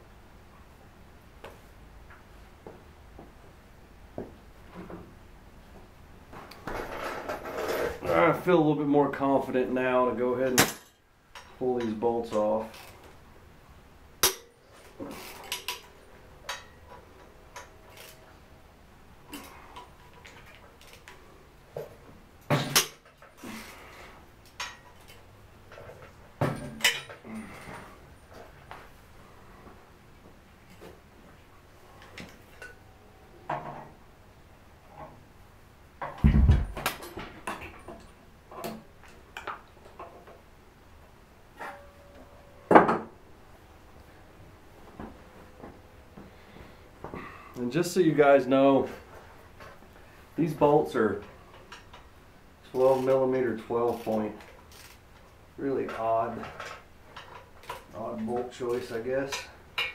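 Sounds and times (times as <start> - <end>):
metal tools clanking: 24.6 - 27.8
heavy thump: 36.2 - 36.9.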